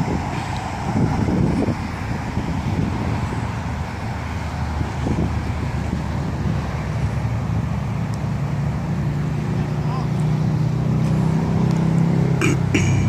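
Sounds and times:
wind buffeting microphone: 0.0s - 9.6s
road traffic hum: 0.0s - 13.0s.

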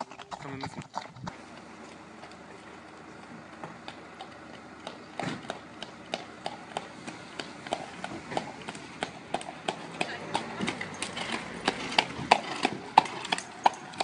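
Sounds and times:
horse hooves on asphalt: 0.0s - 14.0s.

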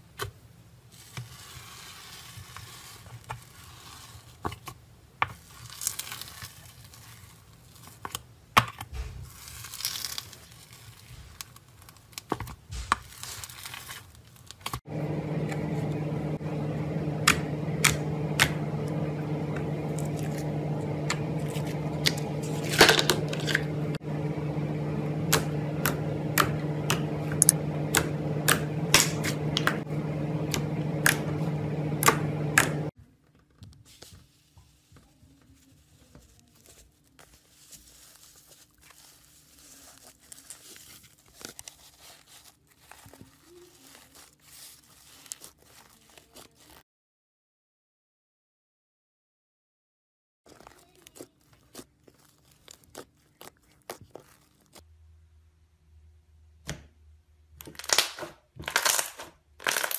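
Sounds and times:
slime crackling and tearing: 5.4s - 8.2s, 8.8s - 14.8s, 36.4s - 46.8s, 50.5s - 54.8s
low hum: 14.9s - 32.9s.

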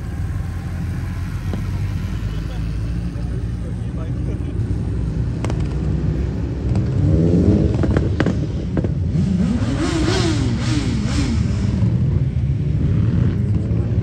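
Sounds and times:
exhaust pops: 0.0s - 2.5s
motorcycle engine accelerating: 0.0s - 14.0s.

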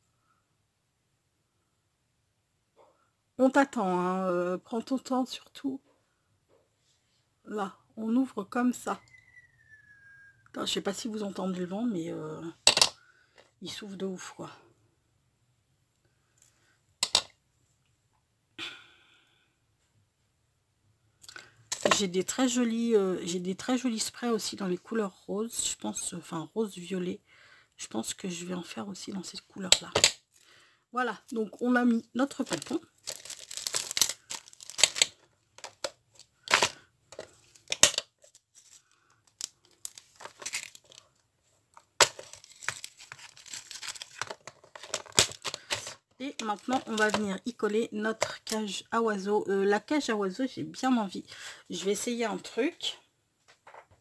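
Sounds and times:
plastic bag rustling: 32.3s - 41.2s, 41.9s - 47.4s.

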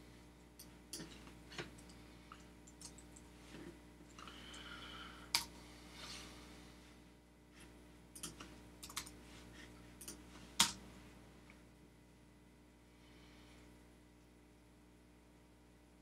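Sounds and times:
faint electrical hum: 0.0s - 16.0s
keyboard typing: 8.2s - 9.2s.

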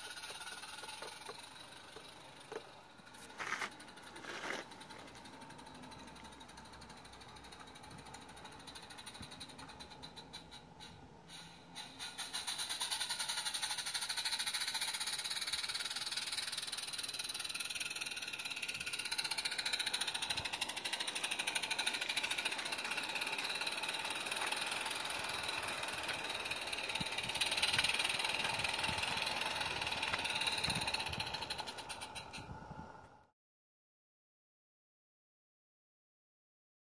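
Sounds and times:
steam locomotive exhaust beats: 0.0s - 33.1s
steam hiss: 11.3s - 16.0s.

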